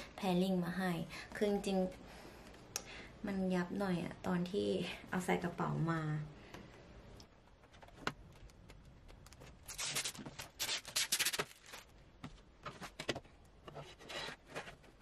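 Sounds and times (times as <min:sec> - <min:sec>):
plastic sheet rustling and crinkling: 0:09.3 - 0:12.1.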